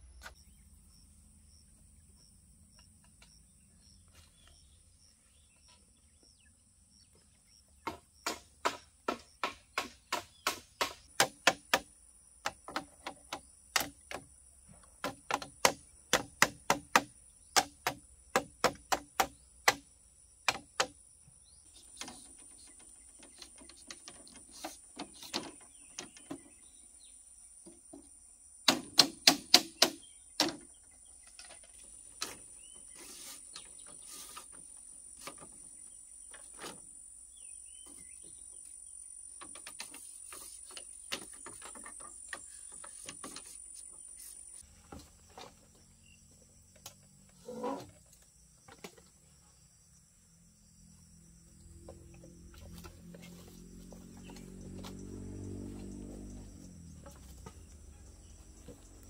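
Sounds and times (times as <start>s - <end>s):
bamboo pieces knocking: 7.8s - 21.0s, 28.7s - 32.5s.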